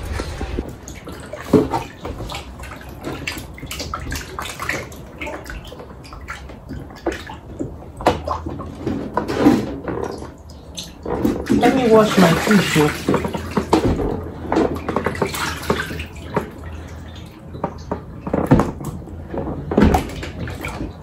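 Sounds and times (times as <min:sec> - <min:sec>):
hands sloshing fish in water: 0:00.0 - 0:21.0
small splashes and squelches: 0:00.6 - 0:21.0.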